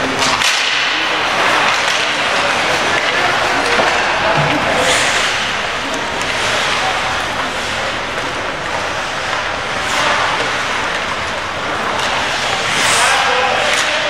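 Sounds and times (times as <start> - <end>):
skates hissing on ice: 4.8 - 5.5, 11.7 - 14.0.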